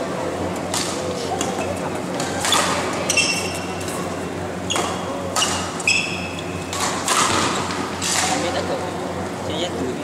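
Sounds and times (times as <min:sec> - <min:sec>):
low hum in hall: 0:00.0 - 0:10.0
rackets hitting shuttlecock: 0:00.6 - 0:04.0, 0:04.8 - 0:08.6
sneakers squeaking on court floor: 0:02.4 - 0:04.0, 0:04.6 - 0:07.7.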